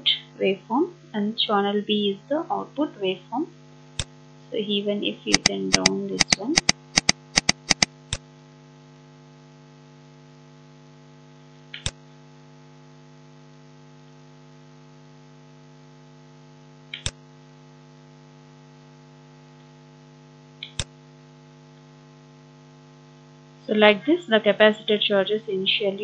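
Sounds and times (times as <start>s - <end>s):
electrical mains hum: 0.0s - 26.0s
computer mouse clicks: 5.3s - 8.0s, 11.8s - 12.0s, 16.9s - 17.2s, 20.6s - 20.9s.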